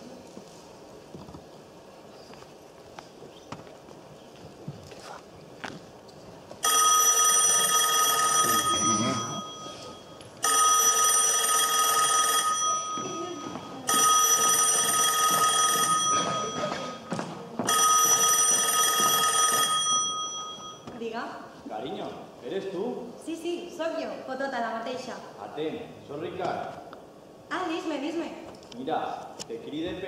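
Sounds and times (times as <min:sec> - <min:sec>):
telephone ringing: 0:06.6 - 0:20.9.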